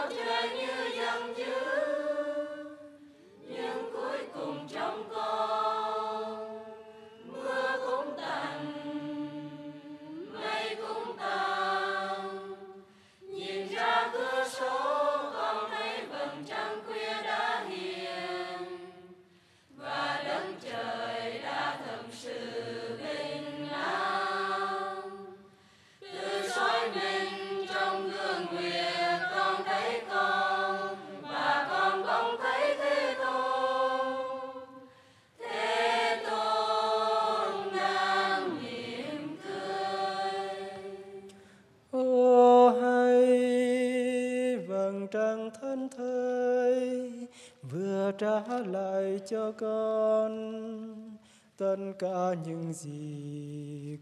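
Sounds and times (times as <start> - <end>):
monastic choir singing: 0.0 - 41.4.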